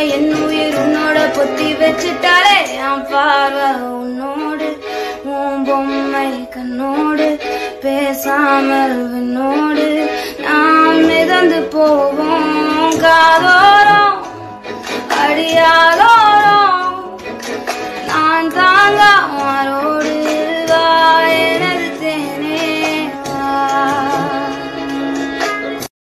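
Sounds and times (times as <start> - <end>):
woman singing: 0.0 - 25.2
instrumental accompaniment: 0.0 - 25.9.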